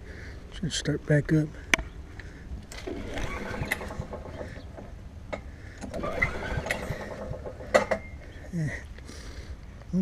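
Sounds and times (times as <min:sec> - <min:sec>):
lawn mower engine turning over: 0:02.6 - 0:08.5.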